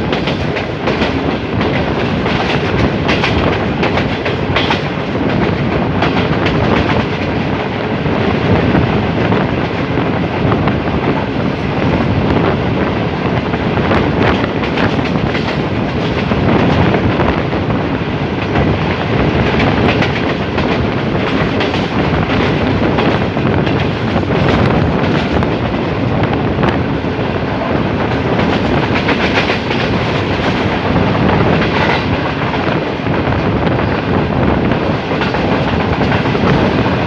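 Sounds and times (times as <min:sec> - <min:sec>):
wheels clacking over track joints: 0:00.0 - 0:07.4, 0:19.4 - 0:25.6
train wheels rumbling on rails: 0:00.0 - 0:37.0.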